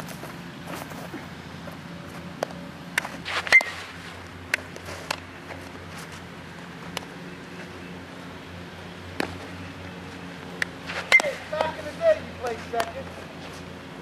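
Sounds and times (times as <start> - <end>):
steady low hum: 0.0 - 14.0
baseball struck by aluminum bat: 10.6 - 11.8, 12.8 - 13.0.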